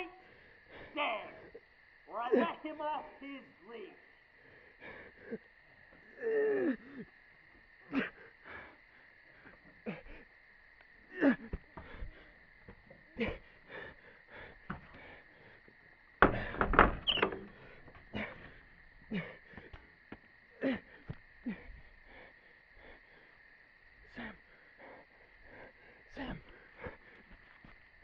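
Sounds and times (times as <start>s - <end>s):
jumble of sound: 25.4s - 27.4s.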